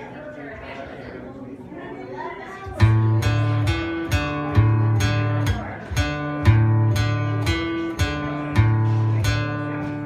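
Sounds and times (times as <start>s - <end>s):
acoustic guitar strumming: 2.8s - 10.0s.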